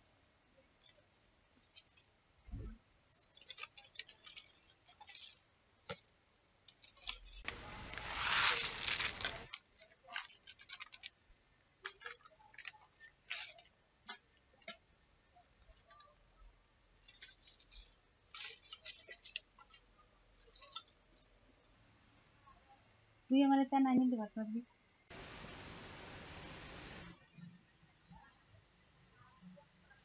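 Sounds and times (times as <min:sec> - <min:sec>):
plastic packets crinkling: 0:03.3 - 0:06.1, 0:06.7 - 0:14.8, 0:17.0 - 0:20.9.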